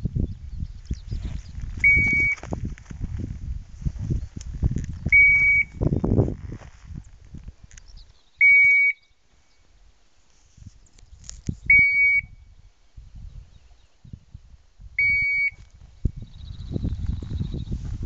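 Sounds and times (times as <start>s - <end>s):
rustling through scrub: 0.9s - 8.1s
high steady beep from collar: 1.8s - 2.4s, 5.1s - 5.9s, 8.4s - 9.0s, 11.7s - 12.4s, 15.0s - 15.6s.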